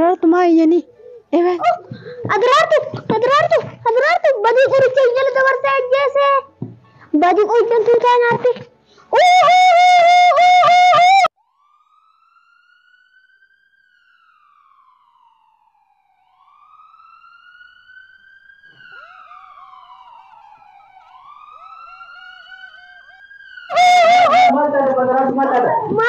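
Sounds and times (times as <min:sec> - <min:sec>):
siren wailing: 0:00.0 - 0:06.3, 0:09.1 - 0:26.0
lower siren tone with quick dips: 0:11.4 - 0:26.0.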